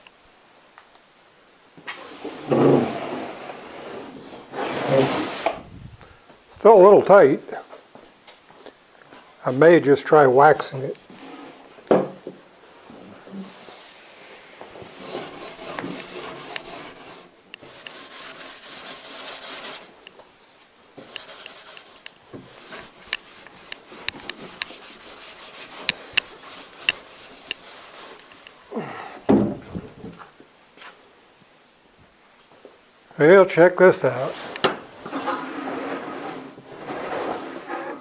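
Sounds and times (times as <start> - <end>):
wooden knock: 11.9 - 12.4
rag rubbing wax on wood: 14.7 - 20.0, 21.0 - 28.8.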